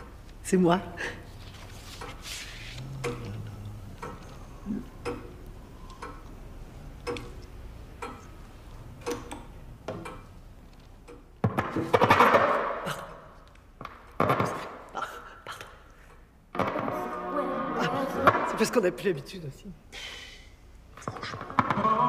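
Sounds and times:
clock ticking: 0:02.8 - 0:11.4.

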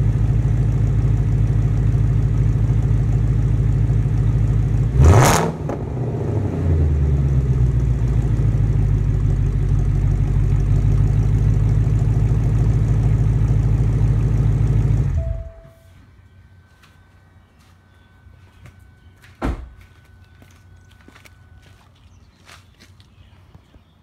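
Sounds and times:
car engine idling: 0:00.0 - 0:19.1
engine throttle blip: 0:13.0 - 0:15.9.

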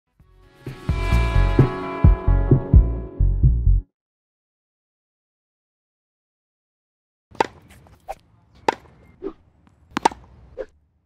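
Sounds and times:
paddle smacking ball: 0:07.3 - 0:10.7
ball bouncing on hard court: 0:07.4 - 0:10.3.

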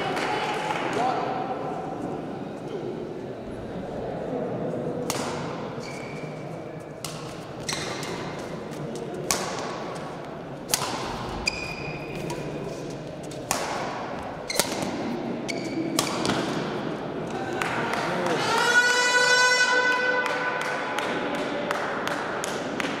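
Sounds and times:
murmur of voices: 0:00.0 - 0:23.0
shoes squeaking on court: 0:05.8 - 0:09.1, 0:11.4 - 0:13.4, 0:14.2 - 0:16.0
badminton racket hitting shuttlecock: 0:07.0 - 0:12.5, 0:13.3 - 0:16.8.

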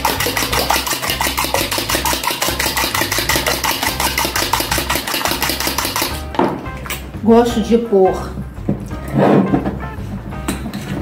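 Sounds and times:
fork beating eggs in a bowl: 0:00.0 - 0:06.3.

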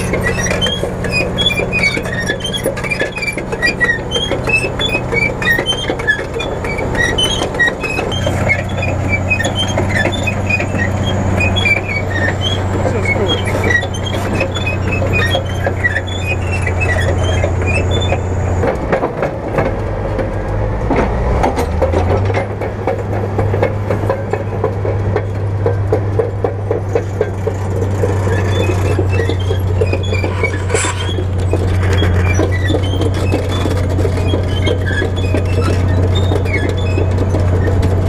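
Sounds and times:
bulldozer diesel engine: 0:00.0 - 0:38.0
steel tracks clanking: 0:00.0 - 0:38.0.

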